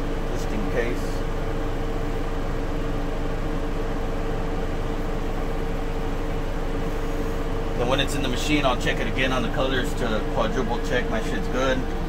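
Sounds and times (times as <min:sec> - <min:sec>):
machinery humming: 0:00.0 - 0:12.0.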